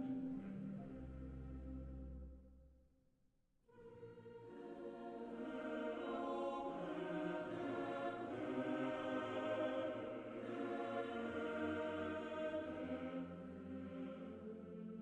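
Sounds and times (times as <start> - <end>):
background music: 0.0 - 2.5, 3.8 - 15.0
sustained layered chords: 0.0 - 2.6.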